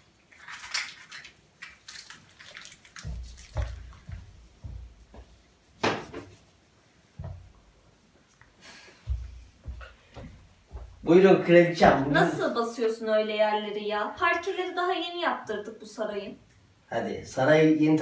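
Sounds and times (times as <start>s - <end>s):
wet palms rubbing: 0.0s - 11.0s
liquid splashing into hands: 0.2s - 4.2s
footsteps on wooden floor: 3.0s - 6.5s, 7.1s - 7.9s, 8.8s - 12.3s.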